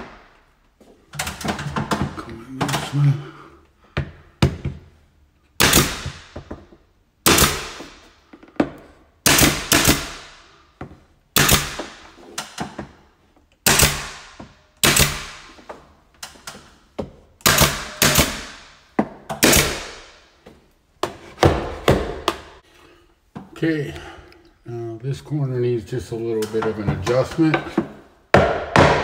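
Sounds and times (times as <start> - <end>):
nail gun shots: 5.6 - 6.4, 7.2 - 8.1, 9.2 - 10.4, 11.4 - 12.1, 13.6 - 15.6, 17.4 - 20.2.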